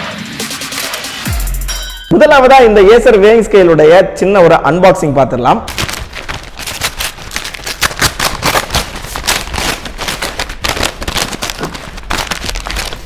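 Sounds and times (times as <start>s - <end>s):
paper envelope tearing and crumpling: 5.7s - 13.0s.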